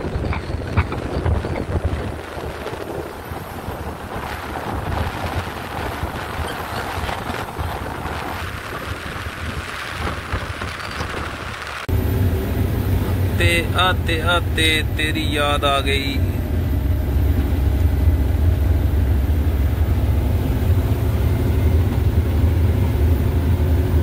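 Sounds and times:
wind buffeting microphone: 0.0s - 15.0s
truck engine and road noise: 0.0s - 24.0s.

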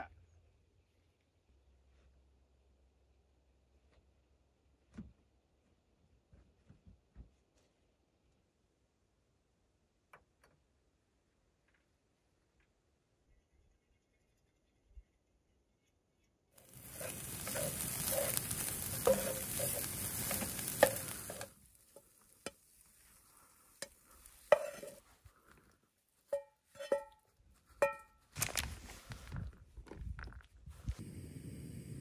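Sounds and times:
eggs sizzling in a frying pan: 16.6s - 27.1s
spatula stirring eggs: 16.6s - 27.2s.

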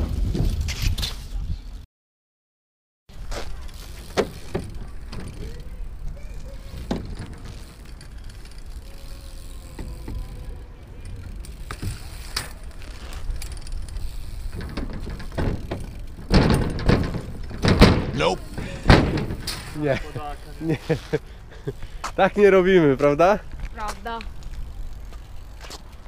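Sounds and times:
bike tyres rumbling on paving: 0.0s - 1.8s, 3.1s - 26.0s
wind: 0.0s - 1.9s, 3.1s - 26.0s
bike clicks and rattles: 3.1s - 26.0s
bike clattering on ramp: 3.2s - 20.3s.

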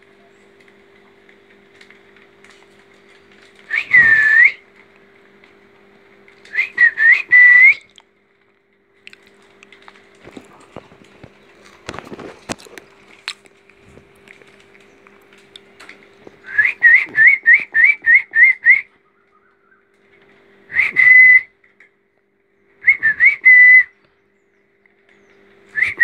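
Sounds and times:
person whistling: 3.7s - 4.6s, 6.5s - 7.8s, 16.4s - 18.9s, 20.7s - 21.5s, 22.8s - 23.9s, 25.8s - 26.0s.

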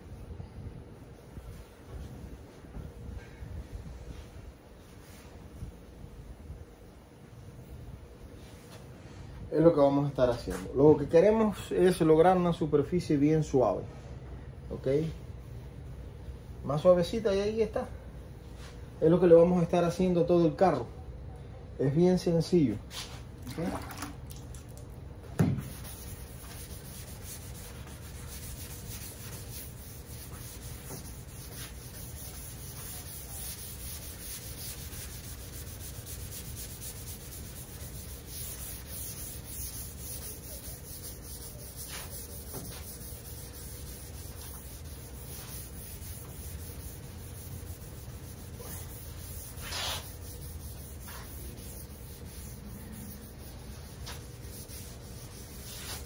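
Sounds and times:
sanding sponge rubbing: 25.6s - 56.0s.

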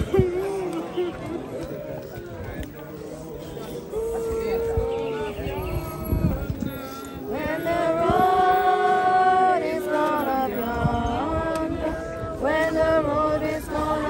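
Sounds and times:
group singing slow melody: 3.2s - 14.0s.

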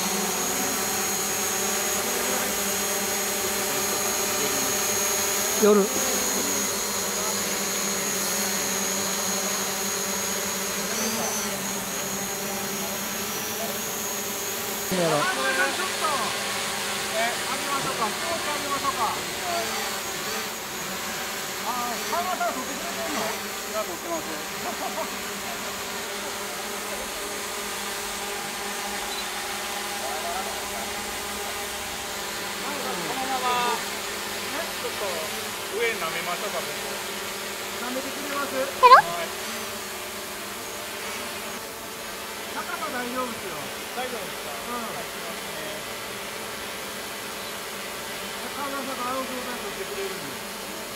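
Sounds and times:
drones hovering: 0.0s - 25.6s.

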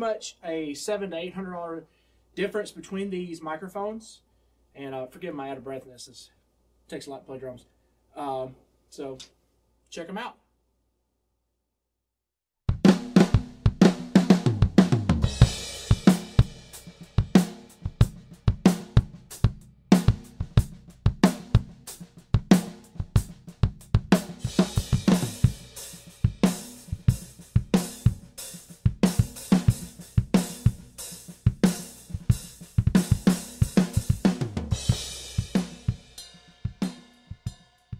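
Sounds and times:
drum kit playing a groove: 12.7s - 37.9s.

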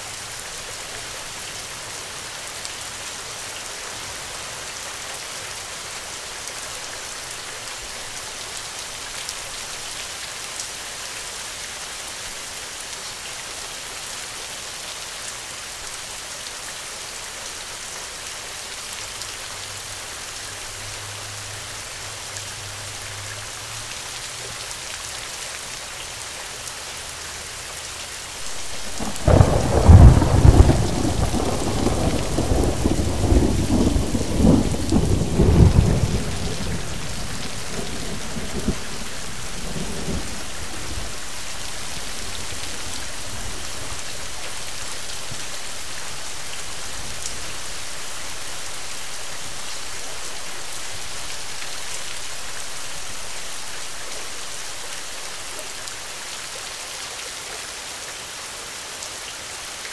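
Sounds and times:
steady rain hissing: 0.0s - 59.9s
rolling thunderclap: 28.5s - 41.2s.

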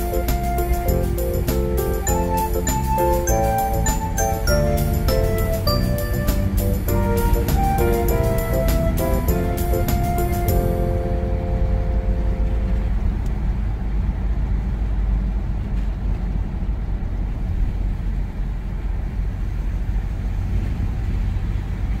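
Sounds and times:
car interior road rumble: 3.0s - 22.0s.

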